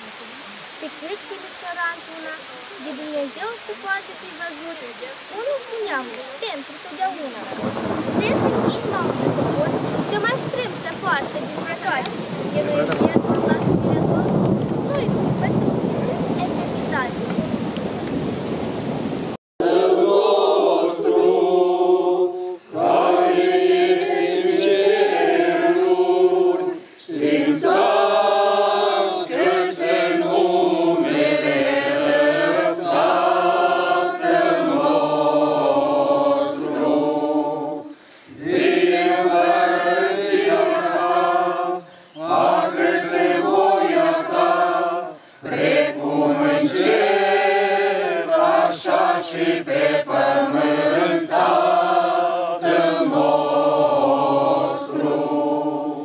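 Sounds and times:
choir singing slow chant: 0.0s - 19.0s, 19.6s - 56.0s.

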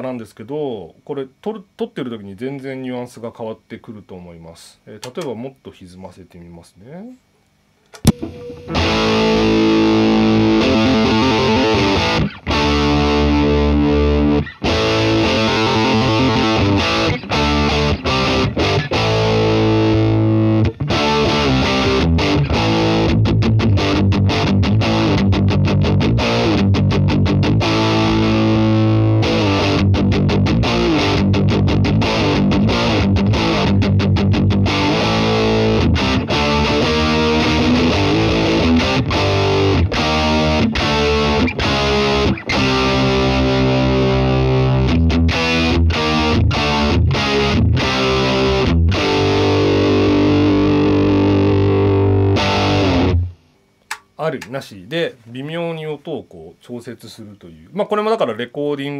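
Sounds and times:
distorted electric guitar: 7.9s - 54.2s.

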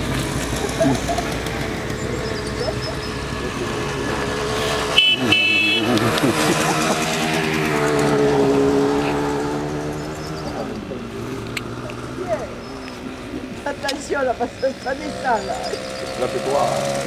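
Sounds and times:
small motorbike engines: 0.0s - 17.0s
horn tooting: 0.7s - 10.6s.

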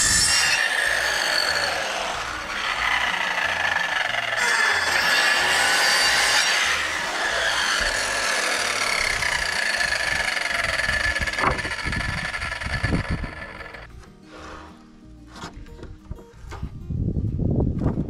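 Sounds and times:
circular saw whine: 0.0s - 13.9s.

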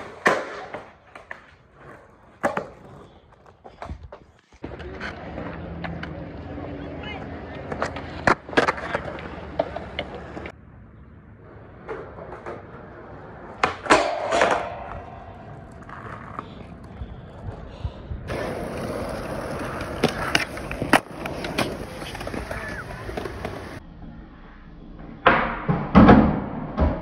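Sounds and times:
skateboard pops and slaps on concrete: 0.0s - 2.9s, 7.6s - 10.5s, 13.5s - 15.1s, 18.3s - 23.8s
skateboard wheels rolling: 0.0s - 23.8s
skateboard trucks grinding metal bar: 12.1s - 16.4s.

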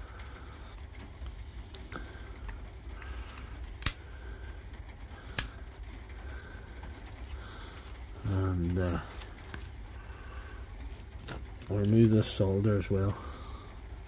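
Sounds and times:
sharp metallic clicks: 3.8s - 4.0s.

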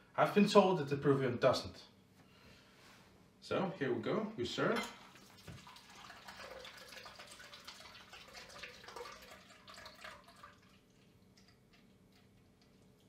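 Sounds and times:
liquid trickling into a glass: 5.0s - 13.0s.

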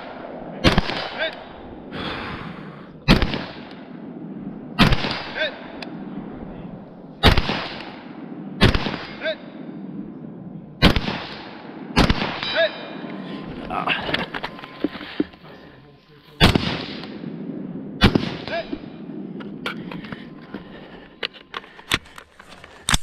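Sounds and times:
rifle shots: 0.0s - 1.9s, 3.0s - 10.0s, 10.8s - 13.2s, 16.4s - 19.6s
distant steel target ringing: 11.6s - 13.2s.

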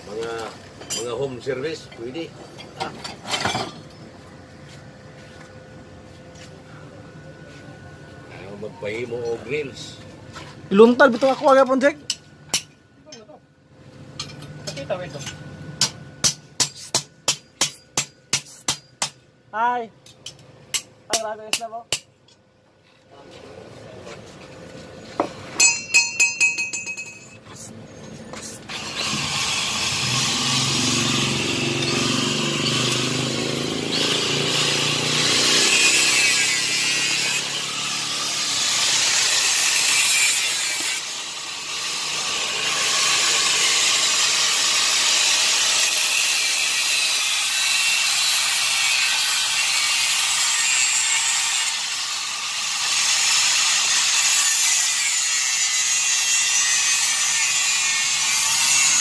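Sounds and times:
sharp metal clinks: 25.6s - 27.4s, 31.5s - 33.2s
angle grinder grinding steel: 25.6s - 59.0s.

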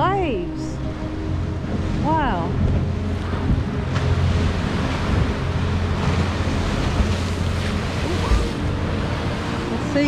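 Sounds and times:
sea waves breaking on beach: 3.2s - 10.0s.

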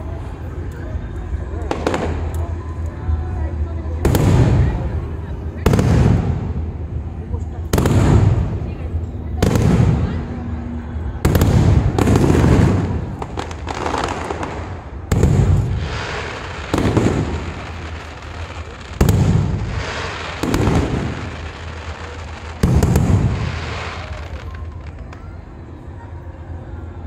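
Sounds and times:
fireworks bursting with booms: 1.6s - 2.6s, 4.0s - 25.2s.

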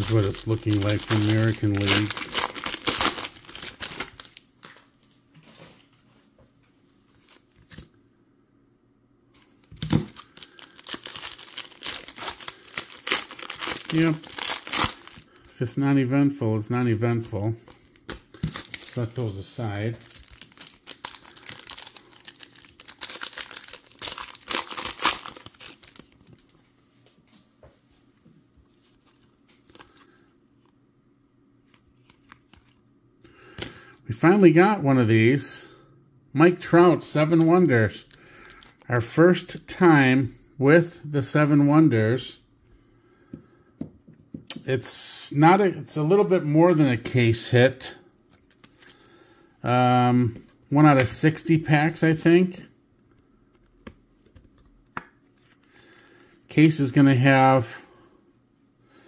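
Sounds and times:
foil wrapper crinkling and tearing: 0.0s - 4.8s, 9.6s - 15.6s, 17.8s - 26.6s, 37.3s - 38.9s, 48.3s - 49.1s.

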